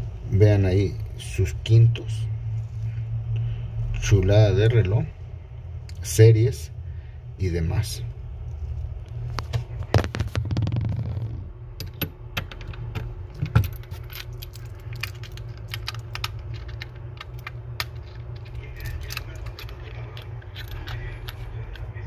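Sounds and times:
low hum: 0.0 - 22.0.

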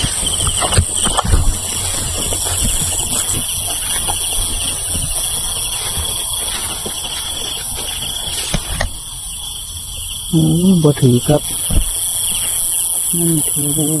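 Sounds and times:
footsteps through dry grass: 0.0 - 9.3
night insects chorus: 0.0 - 14.0.

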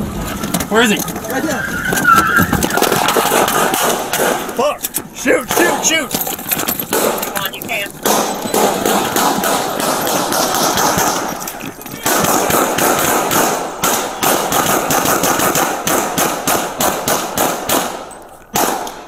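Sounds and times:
handgun shots: 3.5 - 4.6, 8.0 - 11.3, 12.0 - 19.0.

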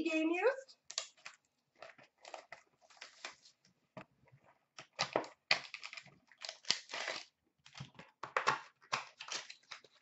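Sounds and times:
cardboard and foil crinkling and tearing: 5.0 - 7.9, 8.8 - 10.0.

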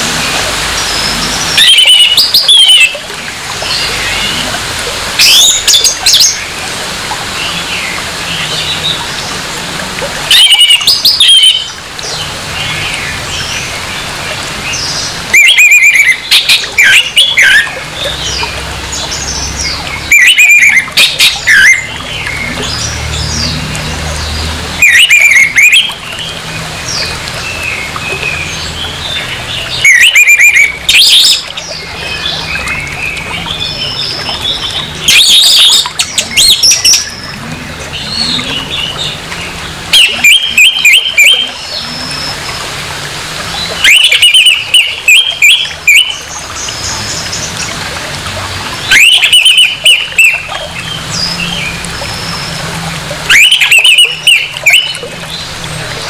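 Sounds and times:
bird singing harsh phrases: 0.8 - 3.0, 5.2 - 6.6, 10.3 - 13.8, 14.7 - 42.5, 43.6 - 47.8, 48.8 - 52.6, 53.3 - 55.6
bird twittering: 0.8 - 3.0, 5.2 - 6.4, 10.3 - 11.7, 14.8 - 23.6, 24.8 - 26.2, 29.2 - 37.4, 39.9 - 42.4, 43.8 - 47.5, 48.8 - 52.6, 53.3 - 55.5.

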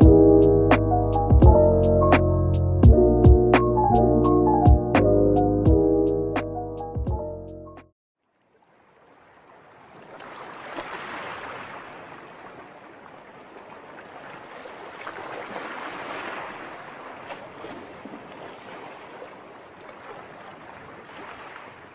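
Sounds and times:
gentle sea waves washing ashore: 8.3 - 21.9.

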